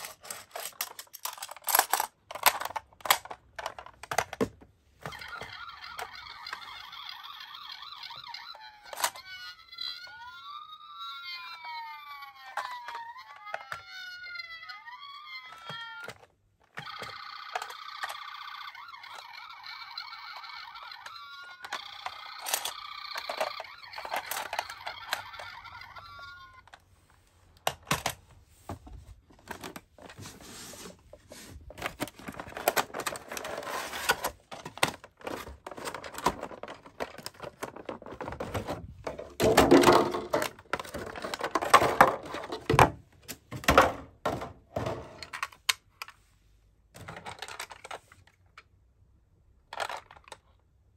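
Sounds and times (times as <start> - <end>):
rustling toy packaging: 0.0 - 50.9
toy ambulance electronic siren: 5.0 - 26.7.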